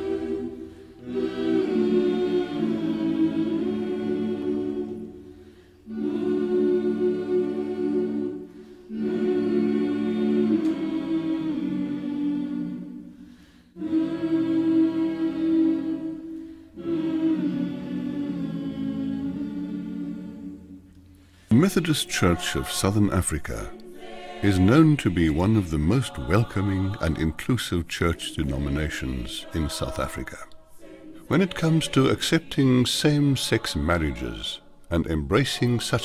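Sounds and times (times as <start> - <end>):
choir singing held chords: 0.0 - 36.0.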